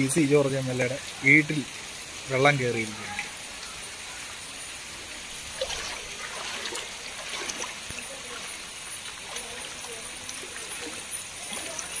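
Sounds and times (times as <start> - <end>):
floodwater flowing and splashing: 0.0 - 12.0.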